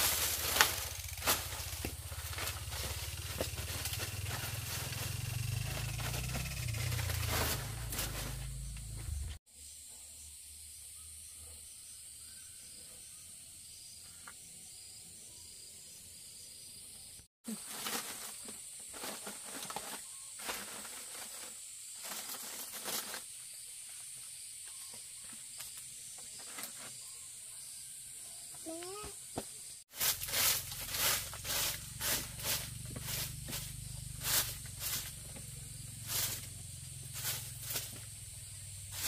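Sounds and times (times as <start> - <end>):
rustles: 0.0 - 9.4, 17.5 - 27.1, 29.9 - 39.0
high-pitched insect chorus: 0.0 - 39.0.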